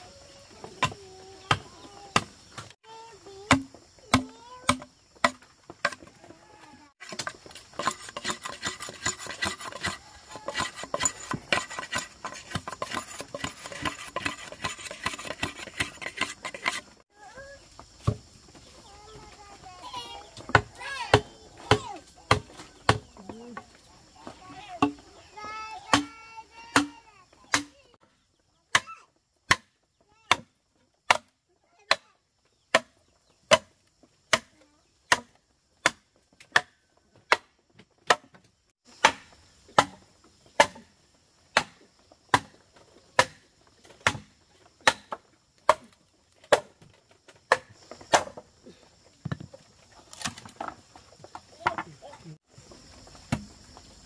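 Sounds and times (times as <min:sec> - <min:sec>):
chopping wood: 0:00.6 - 0:06.2, 0:07.0 - 0:16.9, 0:18.0 - 0:18.3, 0:20.4 - 0:23.6, 0:25.8 - 0:27.9, 0:28.7 - 0:32.1, 0:32.7 - 0:40.9, 0:41.5 - 0:42.6, 0:43.2 - 0:48.5, 0:49.2 - 0:50.8, 0:53.2 - 0:53.6.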